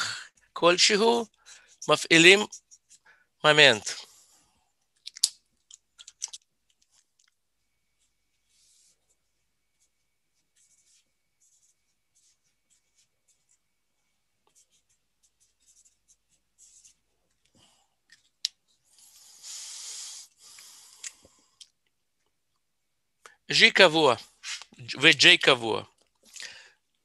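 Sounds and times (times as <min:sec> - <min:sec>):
marker scratching on paper: 0:01.3 - 0:03.0, 0:08.5 - 0:13.7, 0:14.5 - 0:17.1.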